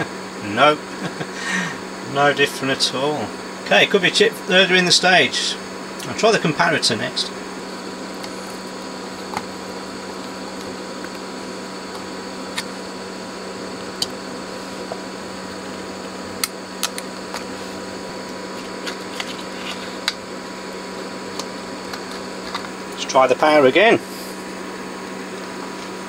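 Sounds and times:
equipment hum and fan noise: 0.0 - 26.0.

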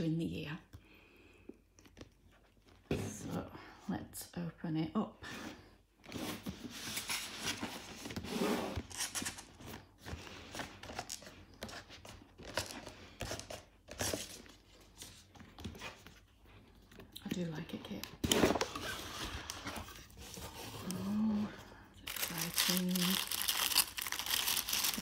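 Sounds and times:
cardboard rustling and scraping: 6.0 - 16.8, 18.2 - 21.0.

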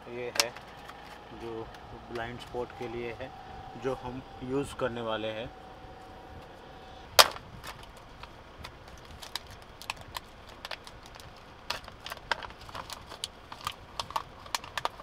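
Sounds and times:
plastic clicks and crackles: 7.2 - 15.0.

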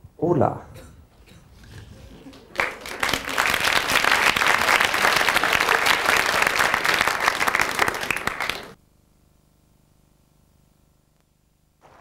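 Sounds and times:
faint hum: 0.0 - 12.0
audience applauding: 2.0 - 8.8.

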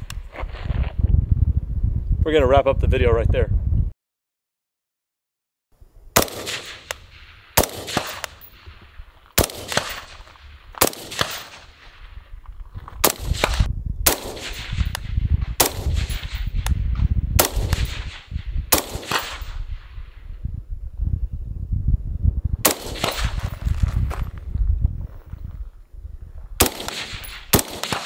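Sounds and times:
suppressed rifle shots: 6.2 - 12.1, 13.0 - 20.0, 22.6 - 23.5, 26.6 - 28.0.

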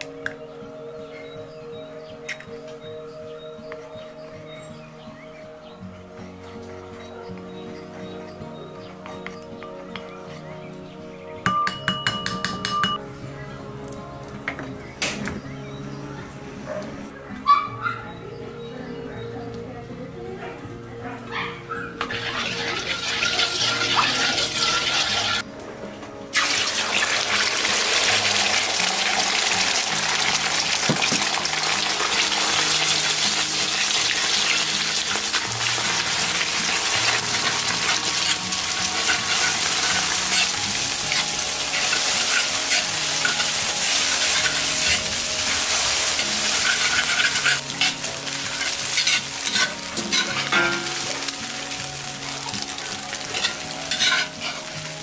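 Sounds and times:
eggs sizzling in hot oil: 22.0 - 25.4, 26.4 - 55.0
metal spatula scraping wok: 22.0 - 25.4, 32.2 - 51.3, 53.3 - 54.8.

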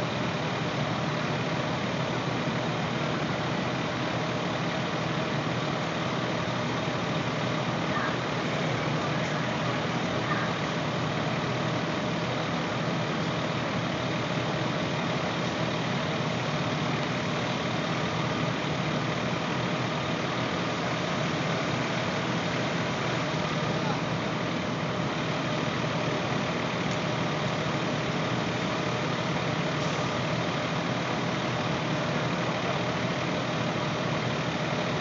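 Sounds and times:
fire engines droning: 0.0 - 35.0.

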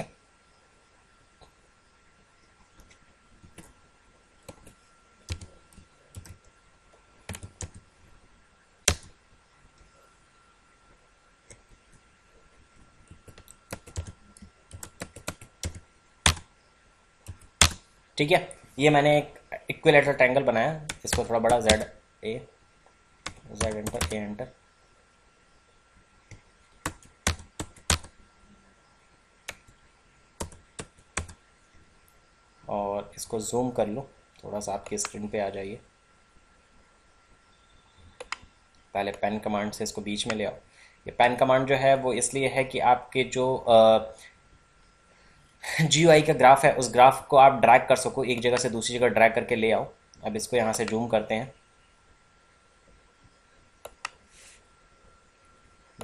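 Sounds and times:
faint steady high tone: 36.8 - 52.1.

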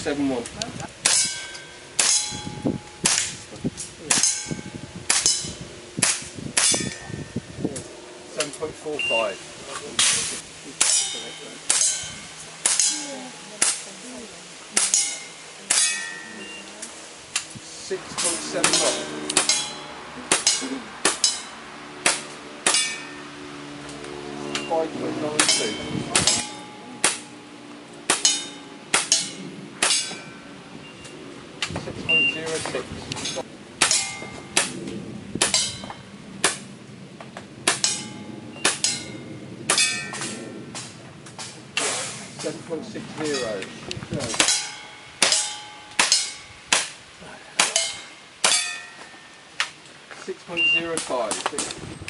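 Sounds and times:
pistol shots hitting steel targets: 1.0 - 3.4, 4.1 - 7.1, 10.8 - 13.8, 14.8 - 16.4, 18.2 - 23.2, 25.4 - 27.3, 28.1 - 30.4, 32.5 - 34.8, 35.4 - 36.7, 37.6 - 42.6, 44.3 - 47.0, 47.6 - 49.2.

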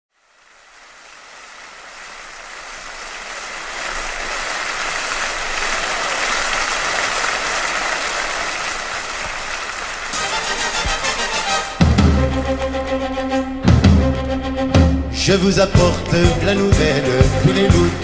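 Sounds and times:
audience applauding: 0.8 - 14.5.

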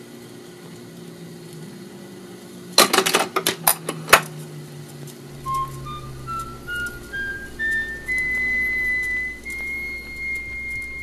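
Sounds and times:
record changer motor hum: 5.3 - 11.0
record music with whistle-like notes: 5.3 - 11.0.

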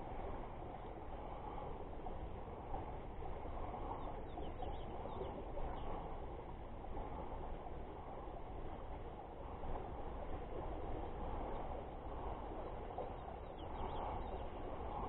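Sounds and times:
outdoor background noise: 0.0 - 15.0
faint bird chirps: 3.9 - 6.0, 13.0 - 14.6.

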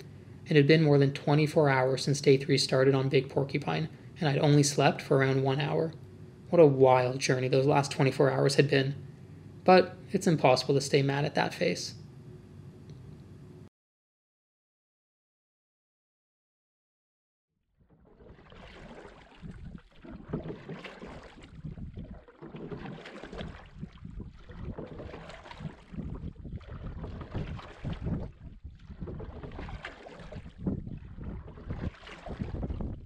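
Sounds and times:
wind gusting over microphone: 19.4 - 20.4, 21.4 - 22.2, 23.4 - 33.0.

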